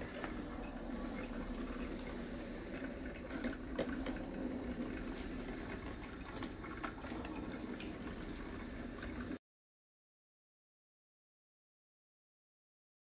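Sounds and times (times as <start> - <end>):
coffee maker bubbling and gurgling: 0.0 - 9.4.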